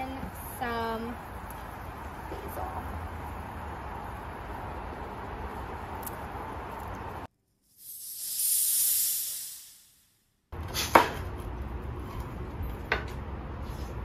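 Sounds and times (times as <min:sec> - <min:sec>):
outdoor background: 0:00.0 - 0:14.0
high hiss: 0:07.7 - 0:10.2.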